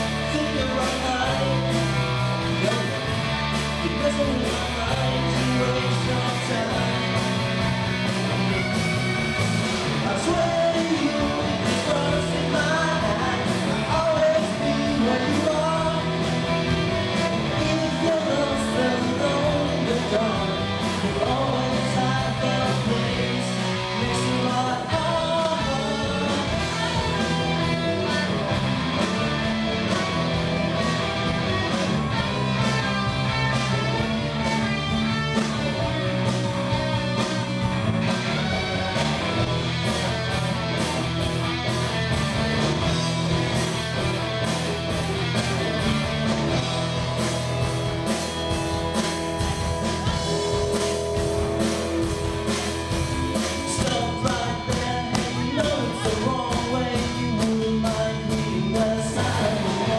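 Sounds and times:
man singing: 0.0 - 7.6, 9.9 - 28.4, 53.2 - 59.9
drum kit: 0.0 - 59.9
electric guitars: 0.0 - 59.9.

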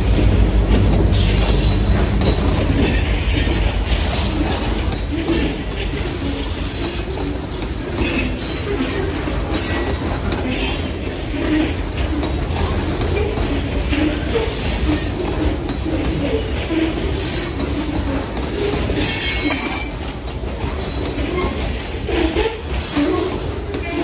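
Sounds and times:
train cars clanking and rattling: 0.0 - 24.0
train wheels rumbling on rail: 0.0 - 24.0.

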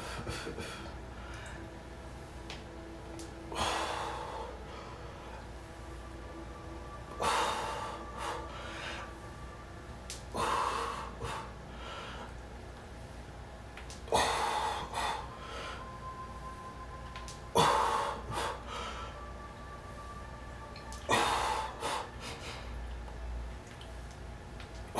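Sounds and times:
man breathing hard: 10.2 - 12.4, 14.1 - 16.0, 17.5 - 19.3, 21.0 - 22.9.

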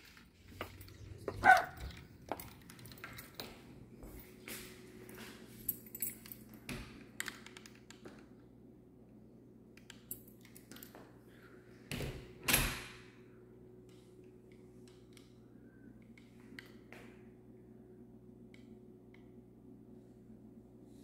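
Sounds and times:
footsteps on hardwood floor: 0.0 - 5.7
steady low hum: 0.0 - 21.0.

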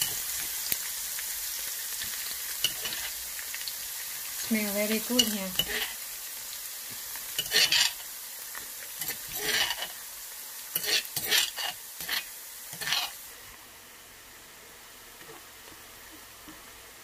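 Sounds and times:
garlic sizzling in oil: 0.0 - 17.0
utensil scraping pan: 5.2 - 6.0, 7.4 - 8.0, 9.0 - 10.0, 10.8 - 13.2.

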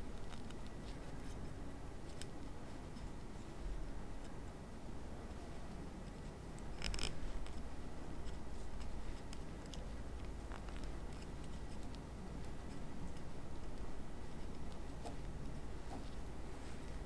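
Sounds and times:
crinkle: 0.0 - 3.4, 6.0 - 17.0
twist tie rustling and ticking: 0.0 - 4.4, 5.2 - 17.0.

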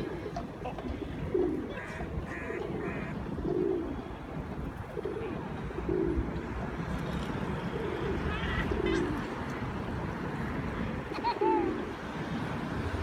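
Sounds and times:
pigeon cooing: 0.0 - 4.0, 4.9 - 6.2, 7.7 - 9.3.

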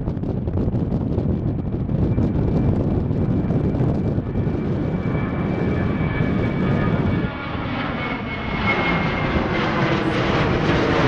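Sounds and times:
jet airliner climbing overhead: 0.0 - 11.0.

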